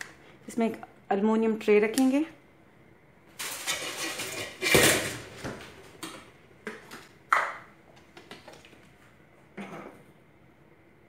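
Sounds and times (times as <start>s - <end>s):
metal kitchenware clinking: 3.4s - 5.2s.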